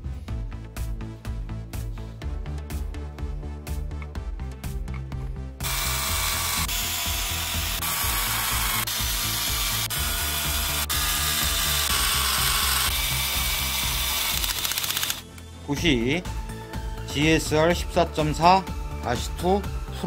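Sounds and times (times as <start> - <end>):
background music: 0.0 - 20.0
electric screwdriver running: 5.6 - 15.4.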